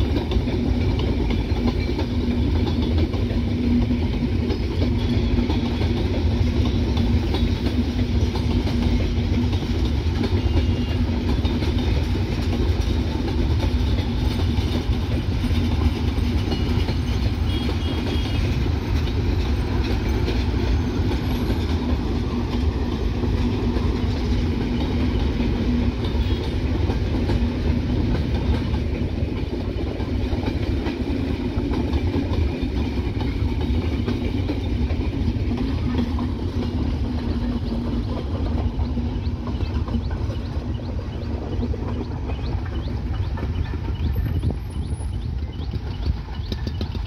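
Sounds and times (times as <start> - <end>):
train wheels rumbling on rails: 0.0 - 47.0.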